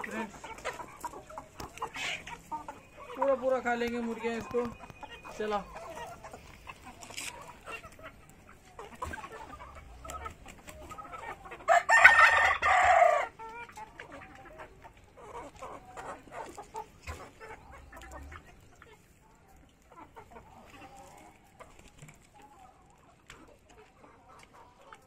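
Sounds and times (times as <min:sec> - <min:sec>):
chickens clucking softly: 0:00.0 - 0:25.0
rooster crowing: 0:11.7 - 0:13.3.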